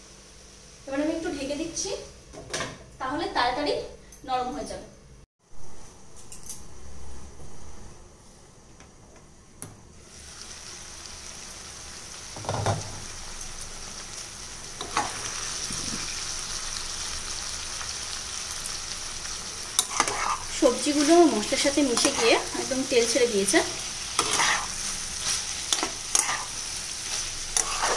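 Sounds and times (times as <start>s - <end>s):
vegetables sizzling in oil: 0.0s - 2.3s, 10.0s - 27.9s.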